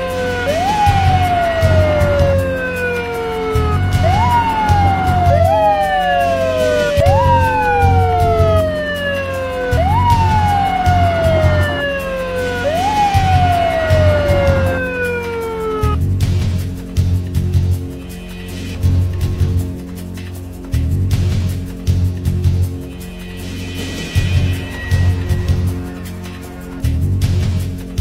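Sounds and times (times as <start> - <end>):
police sirens wailing: 0.0 - 16.0, 18.8 - 19.8
low pulsing beat: 3.3 - 16.4, 18.7 - 21.6.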